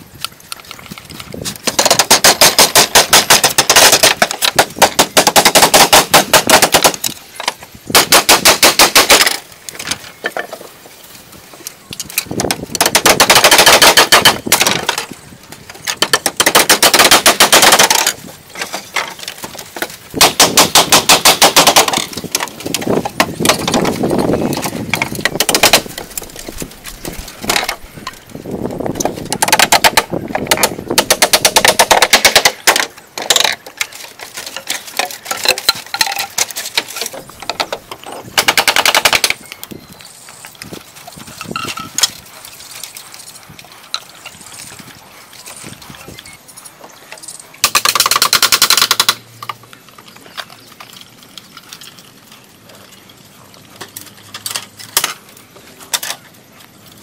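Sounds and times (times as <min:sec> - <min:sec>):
hammering on wooden slats: 0:01.6 - 0:09.4, 0:12.4 - 0:15.1, 0:15.9 - 0:26.1, 0:29.1 - 0:33.6, 0:35.0 - 0:39.4.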